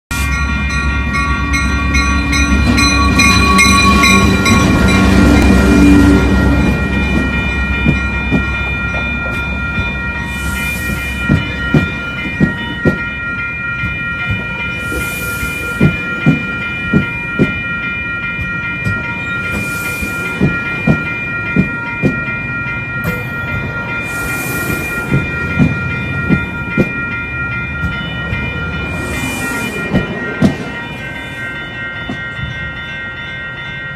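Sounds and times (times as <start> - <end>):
diesel locomotive engine rumble: 0.1 - 33.9
steady high ringing: 0.1 - 33.9
train wheels clacking over rail joints: 18.3 - 22.4.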